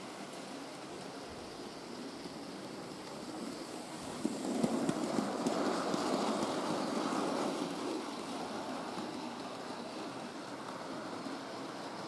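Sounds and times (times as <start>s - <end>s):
model train wheels clattering: 0.0s - 12.0s.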